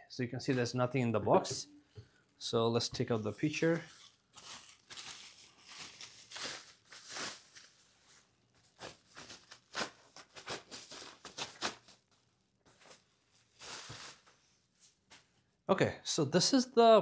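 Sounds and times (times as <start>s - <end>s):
packaging wrap rustling: 3.2s - 14.4s.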